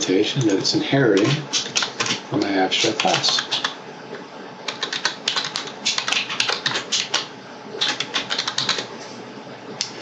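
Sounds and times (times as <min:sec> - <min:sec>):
keyboard typing: 0:00.4 - 0:03.8, 0:04.7 - 0:08.9.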